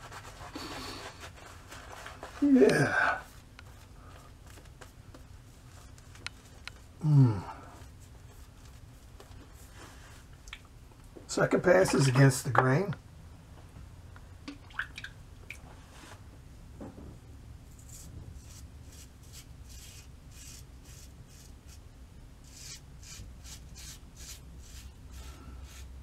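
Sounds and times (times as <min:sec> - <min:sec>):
razor scraping stubble: 0:17.7 - 0:21.8.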